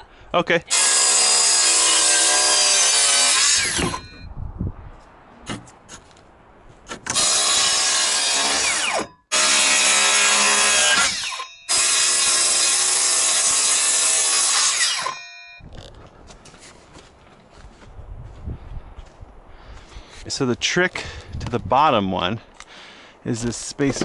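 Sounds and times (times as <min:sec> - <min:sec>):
circular saw cutting plywood: 0:00.7 - 0:04.0, 0:07.1 - 0:15.2.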